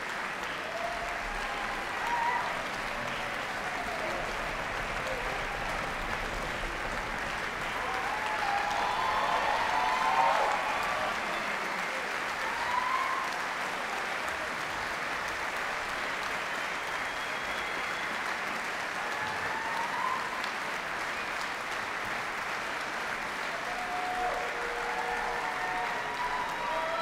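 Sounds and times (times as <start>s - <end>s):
crowd calls: 0.0s - 14.6s, 23.6s - 27.0s
audience applauding: 0.0s - 27.0s.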